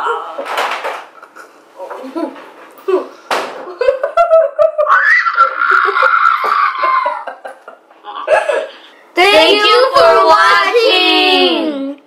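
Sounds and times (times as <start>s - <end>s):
boy's high-pitched cry: 4.9s - 7.3s.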